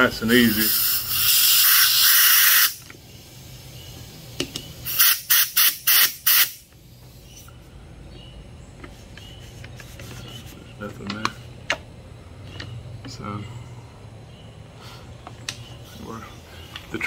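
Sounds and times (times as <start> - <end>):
compressed air blow gun hissing: 0.2 - 7.5.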